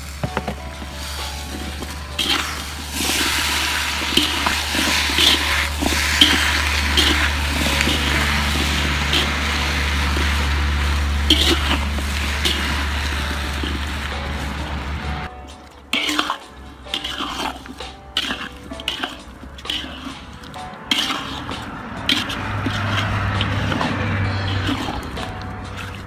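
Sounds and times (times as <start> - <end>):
fruit rustling in a pot: 0.0 - 26.0
berries clicking against metal: 0.1 - 26.0.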